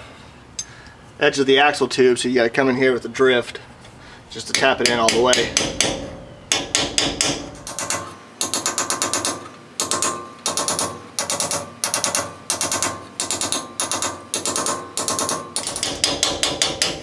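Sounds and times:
hammer tapping on metal: 4.5s - 17.0s.

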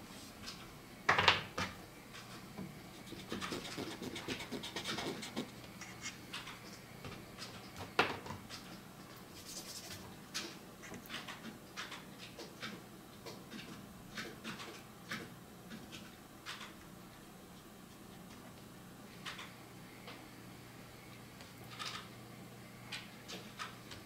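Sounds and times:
pen scratching on paper: 3.0s - 6.2s.

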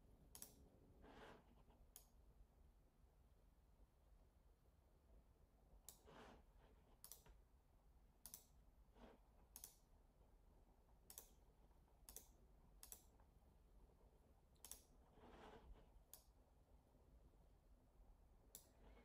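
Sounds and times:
computer mouse clicks: 0.3s - 0.6s, 1.2s - 2.2s, 5.8s - 6.3s, 7.0s - 7.4s, 8.2s - 8.6s, 9.5s - 9.9s, 11.0s - 11.4s, 12.0s - 13.3s, 14.6s - 16.4s, 18.5s - 18.8s.

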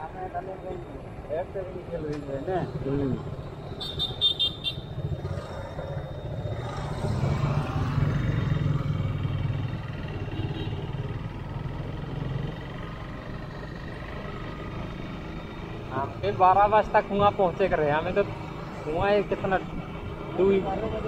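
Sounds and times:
wind and road noise: 0.0s - 21.0s
motorcycle engine running: 3.3s - 15.8s.

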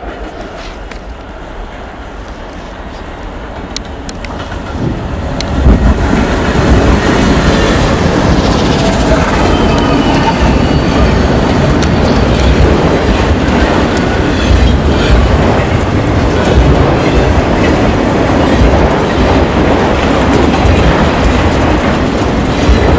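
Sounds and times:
diesel locomotive engine rumble: 0.0s - 22.9s
train wheels on rails: 0.0s - 22.9s.

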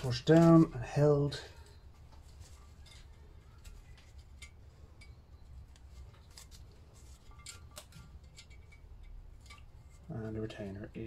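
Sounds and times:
low steady hum: 0.0s - 11.0s
small metallic clicks and clinks: 1.5s - 10.2s.

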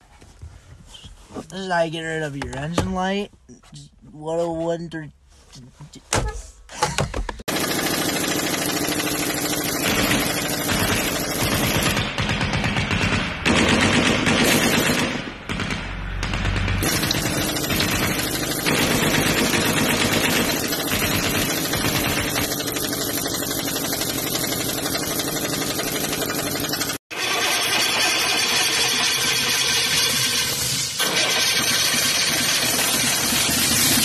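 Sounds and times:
pneumatic impact wrench rattling: 7.4s - 12.0s, 16.8s - 34.0s.

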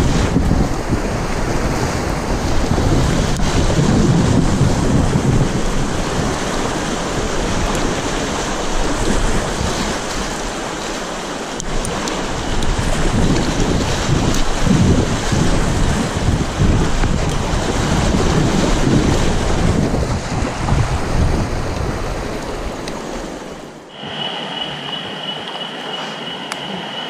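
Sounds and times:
wind buffeting microphone: 0.0s - 27.0s
river water rushing: 19.3s - 27.0s.

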